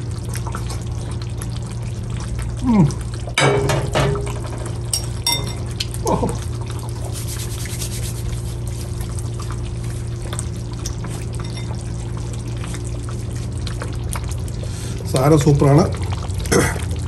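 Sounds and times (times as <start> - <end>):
low hum: 0.0 - 15.1.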